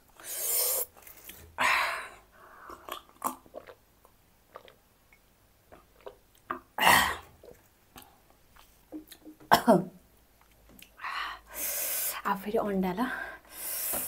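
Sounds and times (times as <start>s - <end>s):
loud breathy hiss: 0.2s - 0.9s, 11.3s - 12.2s, 13.5s - 14.0s
sipping from a glass: 0.2s - 1.4s
wet mouth clicks: 2.7s - 6.7s.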